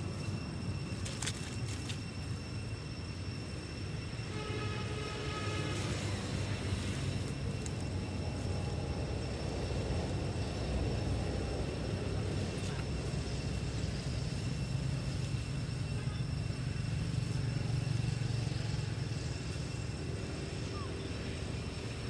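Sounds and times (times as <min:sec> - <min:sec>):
high-pitched drone: 0:00.0 - 0:22.0
road traffic rumble: 0:00.0 - 0:22.0.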